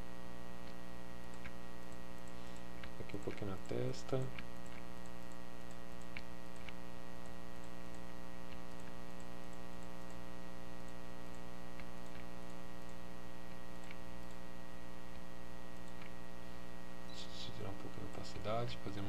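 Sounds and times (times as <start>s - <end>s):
electrical mains hum: 0.0s - 19.0s
computer mouse clicks: 0.6s - 10.2s, 10.8s - 14.4s, 15.8s - 16.2s.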